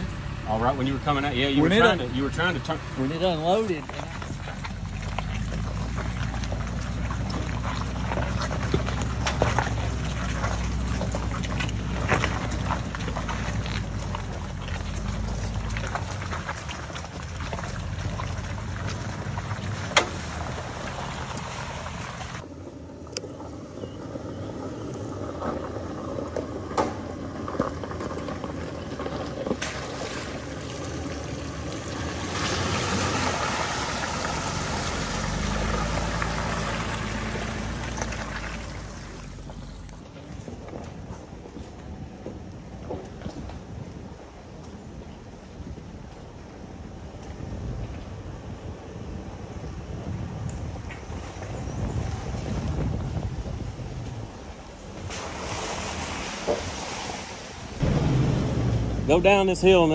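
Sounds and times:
off-road vehicle engine running: 0.0 - 42.4, 57.8 - 59.9.

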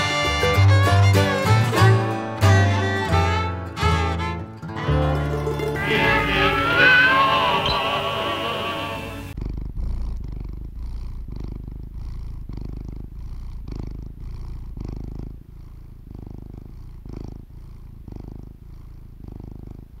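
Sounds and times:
cat purring: 5.7 - 20.0.

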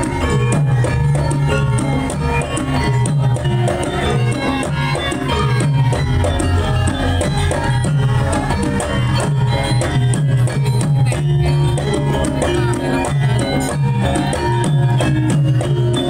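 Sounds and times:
drum beating steady rhythm: 0.0 - 16.0
struck metal percussion melody: 0.0 - 16.0.

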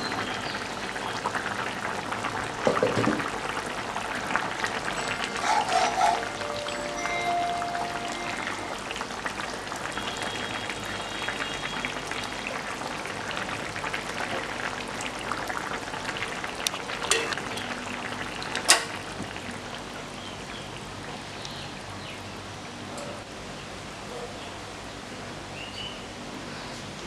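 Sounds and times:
curry boiling in a metal pan: 0.0 - 6.3, 8.9 - 22.1
ladle clinking against pan: 17.1 - 17.4.

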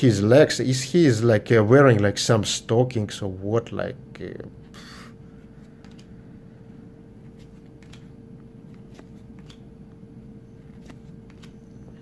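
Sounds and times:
steady low hum: 0.0 - 12.0
trading cards clicking and sliding: 4.8 - 6.2, 7.2 - 12.0.

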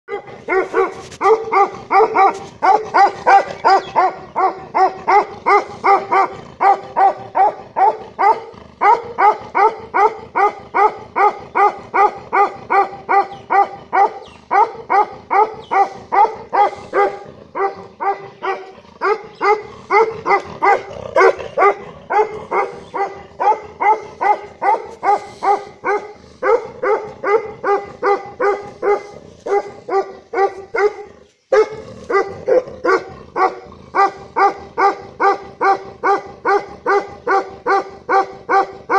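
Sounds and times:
large dog barking aggressively: 0.1 - 38.9.

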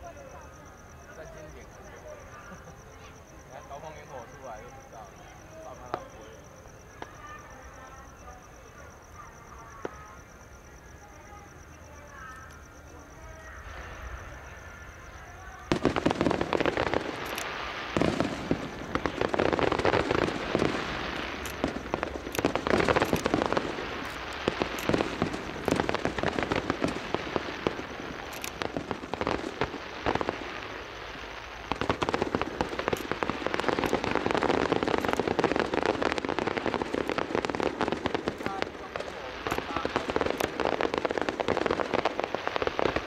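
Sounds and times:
fireworks bangs: 0.0 - 10.3, 13.0 - 43.0
fireworks popping and cracking: 5.6 - 7.4, 15.5 - 43.0.

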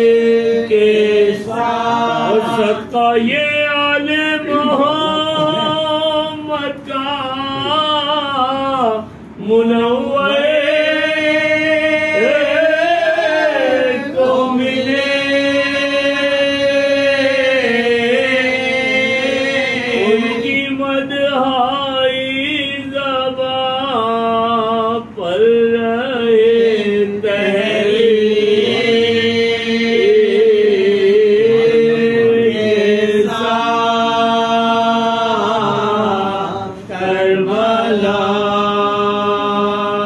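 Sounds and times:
men chanting: 0.0 - 40.0.

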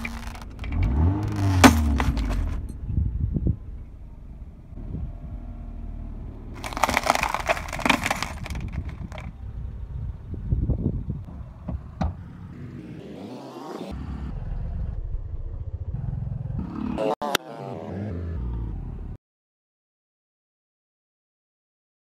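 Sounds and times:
glass and plastic cracking: 0.0 - 2.6, 6.6 - 9.3
low car rumble: 0.0 - 13.0, 14.0 - 17.0.

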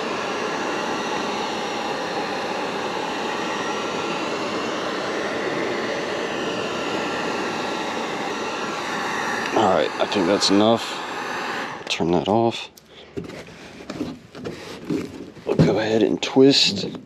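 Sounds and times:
heat gun blowing air: 0.0 - 12.5.

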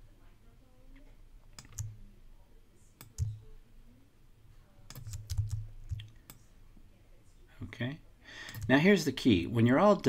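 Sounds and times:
mouse and keyboard clicks: 1.5 - 2.0, 3.0 - 3.4, 4.9 - 6.4.

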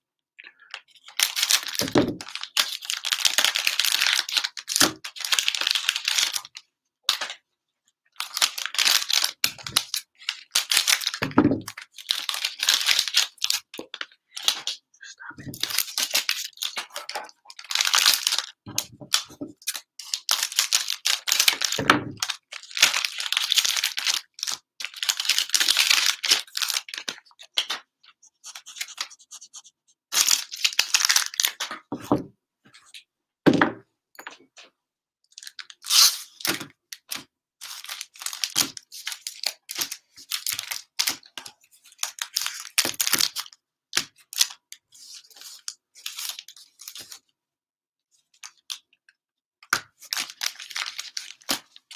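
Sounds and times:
foil wrappers crinkling: 15.5 - 27.8, 28.4 - 31.6, 50.0 - 51.9.

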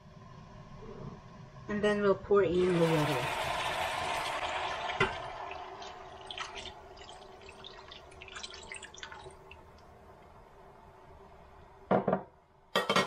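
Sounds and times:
water dribbling into pot: 2.6 - 9.9.

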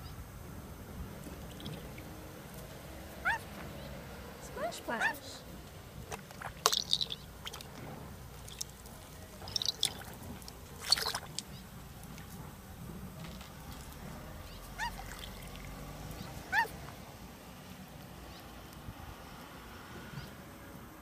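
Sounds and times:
short water splashes: 1.2 - 2.7, 5.9 - 16.8
bird chirps: 1.5 - 2.0, 6.7 - 7.6, 9.4 - 10.1.

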